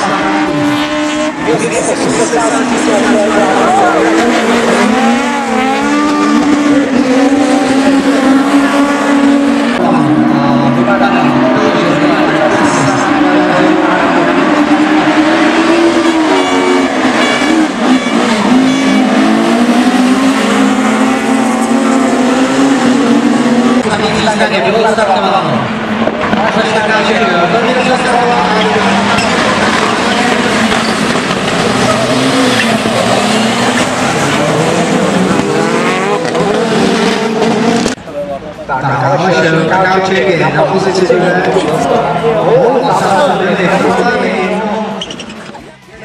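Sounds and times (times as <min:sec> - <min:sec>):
rallycross cars racing: 0:00.0 - 0:46.0.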